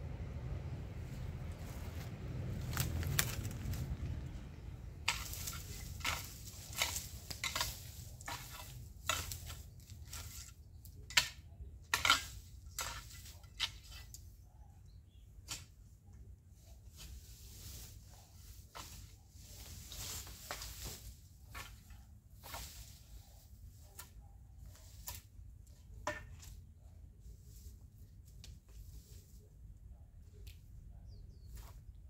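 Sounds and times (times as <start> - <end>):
garden tool dragged over ground: 1.0 - 14.3, 16.6 - 26.6, 27.2 - 29.6
footsteps crunching dry grass: 1.1 - 4.4, 5.0 - 10.5, 17.0 - 24.0.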